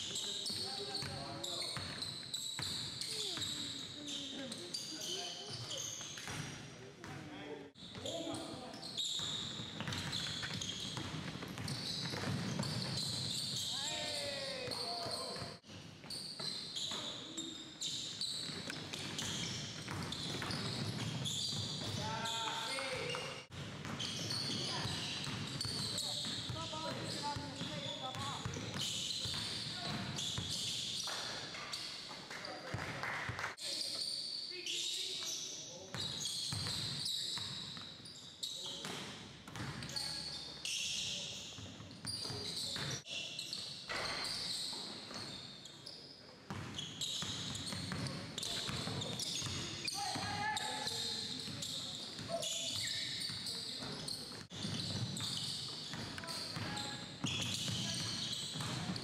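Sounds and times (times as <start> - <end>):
sneaker squeaks: 0.0 - 7.2, 7.8 - 32.8, 33.6 - 59.0
basketball bouncing: 9.3 - 13.6, 56.6 - 59.0.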